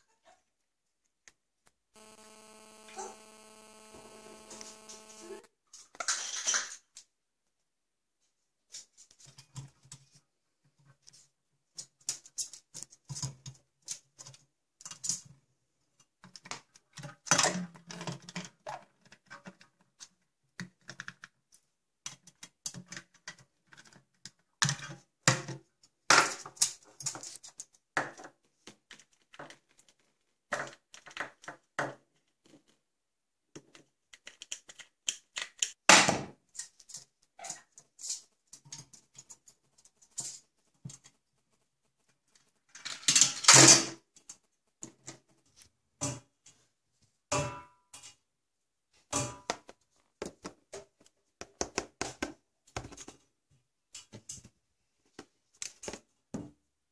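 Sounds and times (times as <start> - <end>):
parrots clattering toys: 42.7 - 45.4.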